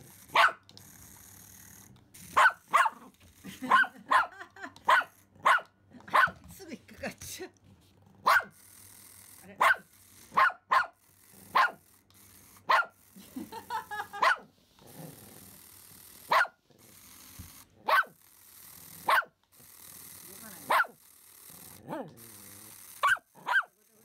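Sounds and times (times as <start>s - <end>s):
small dog barking: 0.3s - 0.6s, 2.3s - 6.4s, 8.2s - 8.6s, 9.6s - 11.8s, 12.7s - 13.0s, 14.1s - 14.5s, 16.3s - 16.6s, 17.8s - 18.2s, 19.0s - 19.4s, 20.6s - 21.0s, 23.0s - 23.8s.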